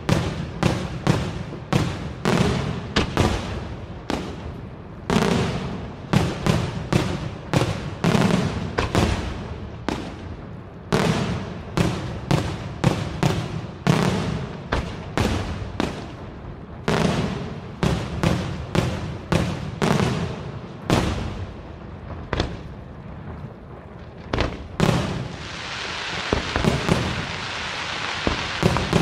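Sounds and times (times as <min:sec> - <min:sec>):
firework shells bursting with echo: 0:24.1 - 0:29.0.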